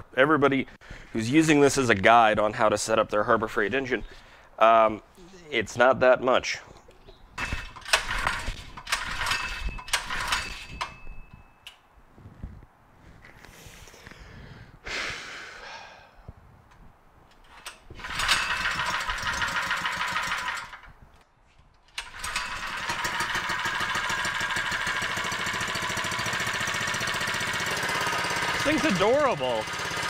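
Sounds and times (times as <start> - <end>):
small engine running: 7.4 - 10.7, 18.0 - 20.9, 22.0 - 30.0
engine pull-start cord: 7.4 - 11.0, 17.5 - 20.9, 22.0 - 30.0.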